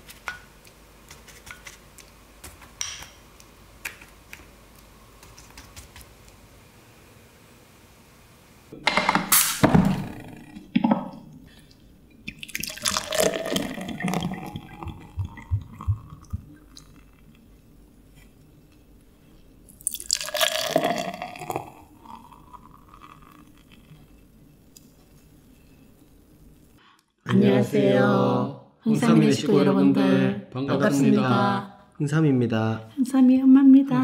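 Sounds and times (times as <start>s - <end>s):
beer glugging into glass: 12.3s - 17.2s, 19.8s - 23.9s.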